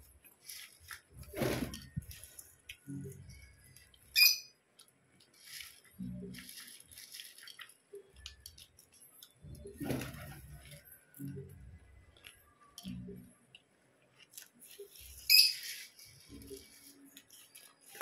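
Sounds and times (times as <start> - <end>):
sharp high-pitched chirp: 4.2 - 4.6
chewing crunchy puffed rice: 4.7 - 9.4, 12.1 - 18.0.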